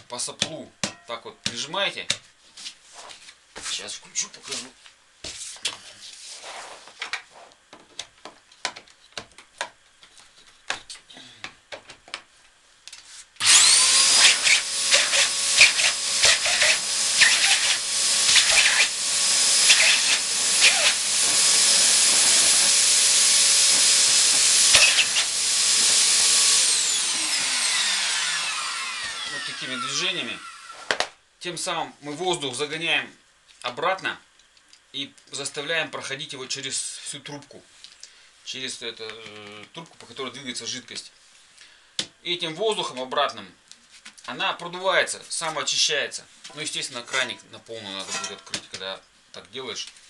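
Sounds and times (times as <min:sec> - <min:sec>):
blower motor whining: 0:13.4 - 0:30.9.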